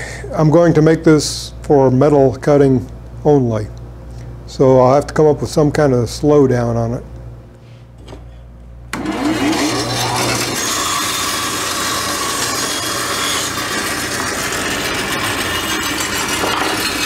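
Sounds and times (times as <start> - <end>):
bandsaw cutting wood: 8.9 - 17.0.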